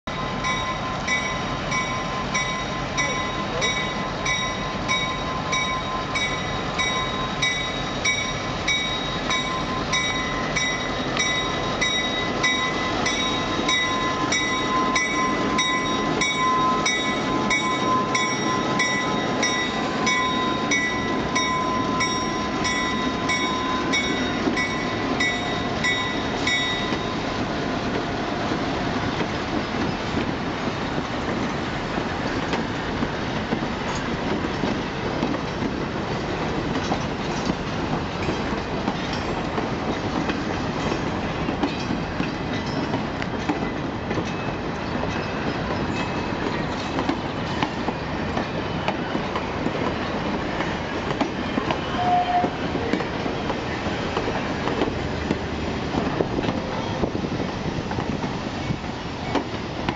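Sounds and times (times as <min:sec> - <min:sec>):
diesel locomotives rolling past: 0:00.0 - 0:59.9
locomotive bell ringing: 0:00.1 - 0:29.0, 0:38.2 - 0:40.0, 0:41.7 - 0:48.0.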